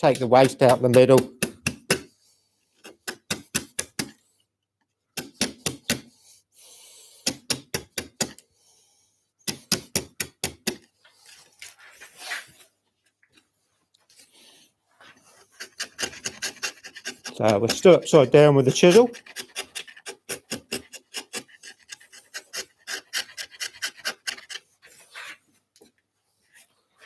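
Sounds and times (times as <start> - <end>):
chisel paring scrape: 0.0 - 2.1, 2.8 - 4.2, 15.0 - 25.5.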